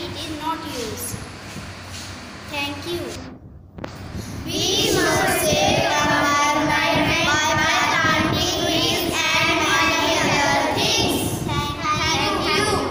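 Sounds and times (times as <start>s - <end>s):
children singing in unison: 4.5s - 12.9s.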